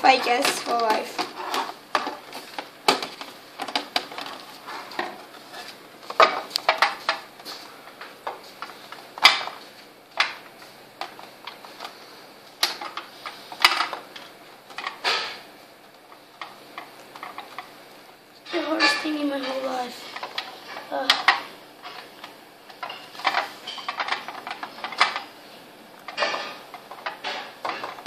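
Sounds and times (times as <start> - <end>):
plastic parts clicking and knocking: 0.1 - 5.2, 6.1 - 7.2, 12.6 - 15.4, 18.8 - 25.3, 26.0 - 28.0.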